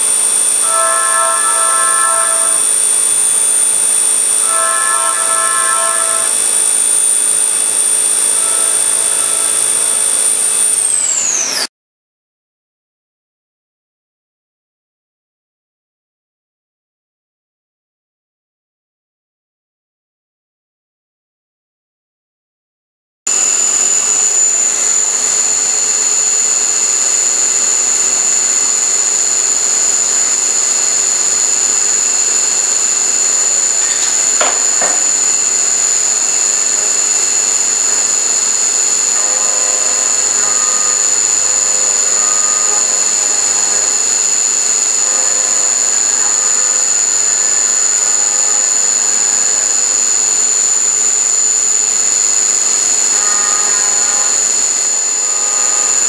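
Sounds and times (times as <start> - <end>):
milling machine spindle whine: 0.0 - 11.7, 23.3 - 56.0
short intermittent tones: 0.6 - 3.6, 4.2 - 7.0.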